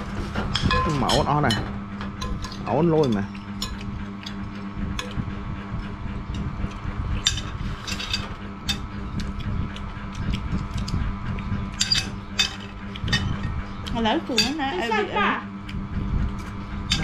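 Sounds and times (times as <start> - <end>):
steady low hum: 0.0 - 17.0
metal spoons clinking on plates: 0.6 - 4.4, 11.8 - 13.5, 14.3 - 14.7.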